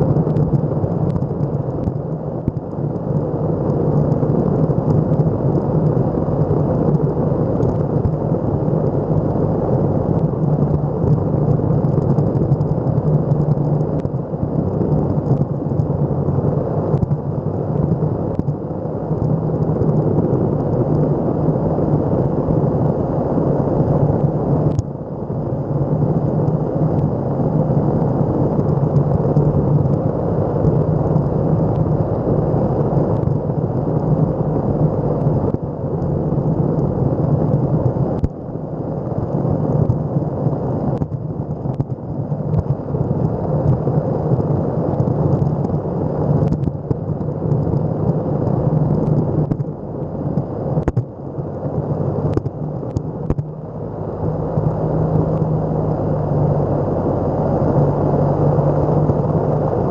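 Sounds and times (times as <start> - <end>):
low motor hum: 0.0 - 59.9
skateboard wheels rumbling on asphalt: 0.0 - 59.9
sharp clicks and knocks: 46.4 - 51.1.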